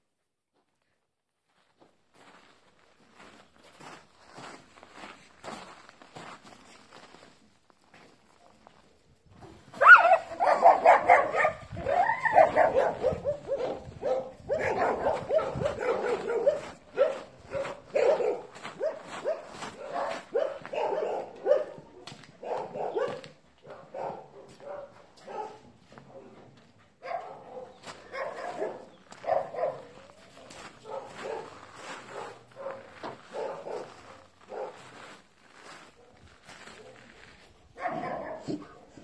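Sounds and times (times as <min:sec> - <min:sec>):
dogs barking: 0:09.8 - 0:26.3, 0:27.0 - 0:35.0, 0:37.7 - 0:39.0.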